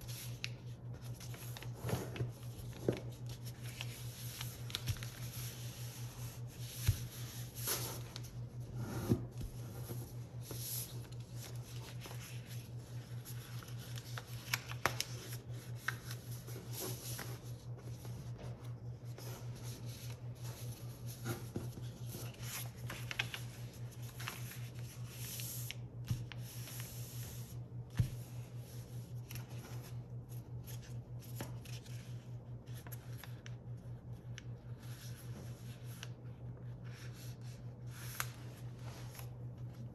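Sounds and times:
paper rustling and sliding: 0:00.0 - 0:33.3, 0:36.8 - 0:39.8
paper folds snapping: 0:13.5 - 0:16.2.

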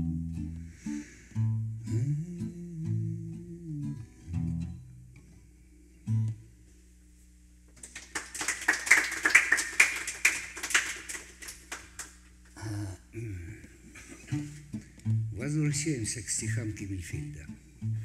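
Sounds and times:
acoustic guitar low note: 0:00.0 - 0:06.6, 0:12.6 - 0:18.0
small audience clapping: 0:07.7 - 0:12.7.

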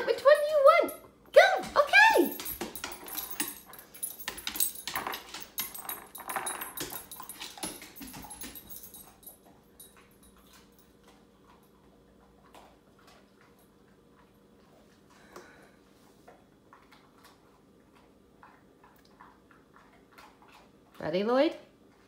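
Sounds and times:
dog nails clicking on wood: 0:01.6 - 0:10.8.

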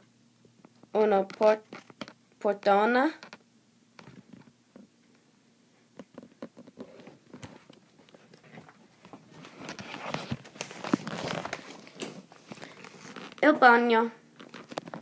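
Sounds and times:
soft footsteps: 0:04.0 - 0:13.5
phone handling rustle: 0:06.0 - 0:13.4, 0:14.4 - 0:15.0.

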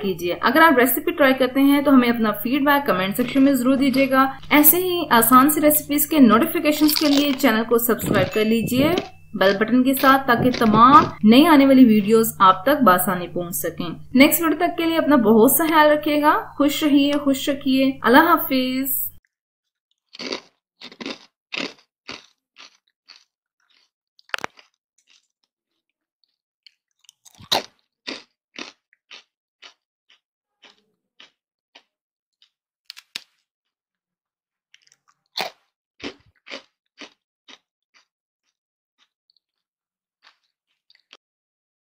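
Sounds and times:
fried snack crunching: 0:01.8 - 0:04.6, 0:05.4 - 0:13.3, 0:19.6 - 0:33.8, 0:34.6 - 0:41.2.

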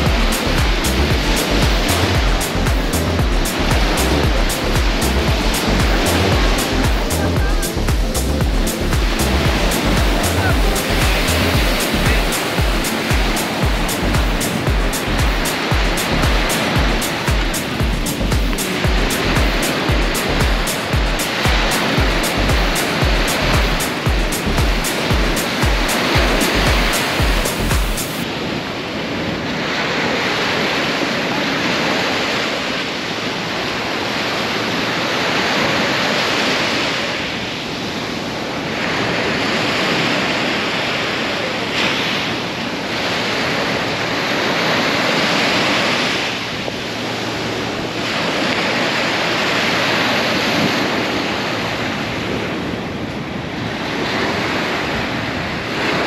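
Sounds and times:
wind buffeting microphone: 0:00.0 - 0:31.6
waves surging and breaking: 0:00.0 - 0:56.0.

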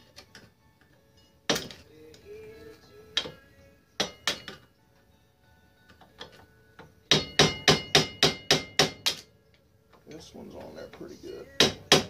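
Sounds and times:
hammer striking metal brake: 0:07.1 - 0:09.3.

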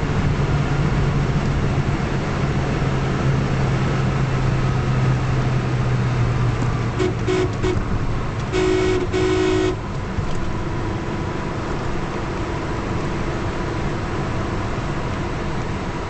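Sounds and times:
car cabin engine noise: 0:00.0 - 0:16.0
car horn honking: 0:06.9 - 0:09.9.

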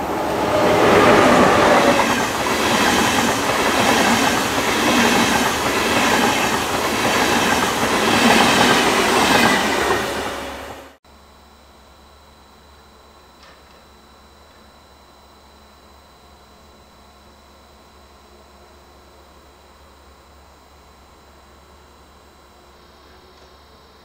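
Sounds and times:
train wheels on rails: 0:00.0 - 0:11.0.

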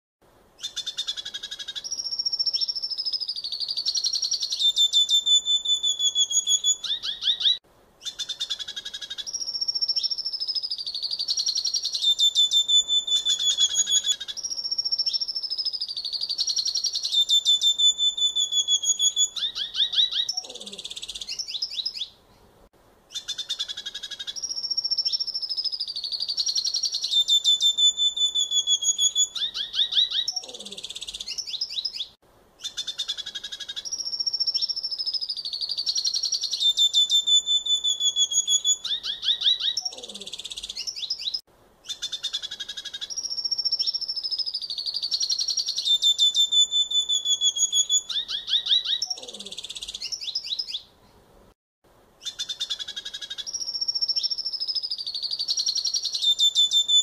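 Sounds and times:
bird singing twittering song: 0:00.6 - 0:22.5, 0:23.1 - 0:51.2, 0:52.2 - 0:57.0.

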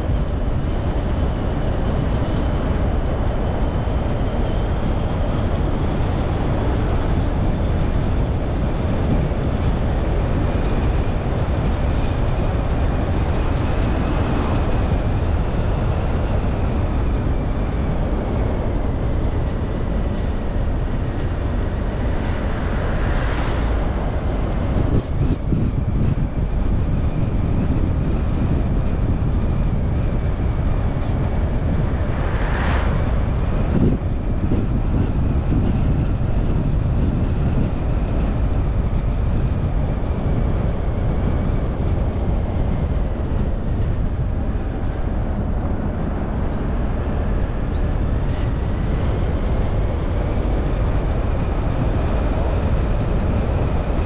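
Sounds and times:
car tyre and engine noise: 0:00.0 - 0:54.0
faint high whine: 0:30.2 - 0:35.0.

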